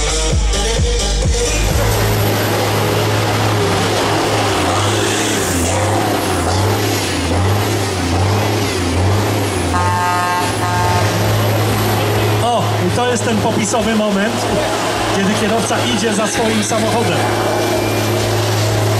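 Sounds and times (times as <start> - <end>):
truck engine droning: 0.0 - 18.9
horn-like tone: 9.6 - 12.5, 16.6 - 18.9.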